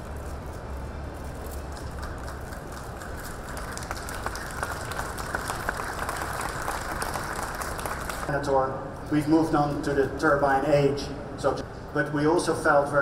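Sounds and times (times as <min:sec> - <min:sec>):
low hum of busy hall: 0:00.0 - 0:13.0
crowd applauding: 0:01.7 - 0:08.3.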